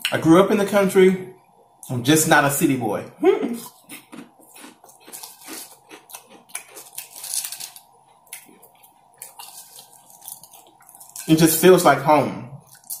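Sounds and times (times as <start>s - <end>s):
chewing crisp potato chips: 3.6s - 11.9s, 12.6s - 13.0s.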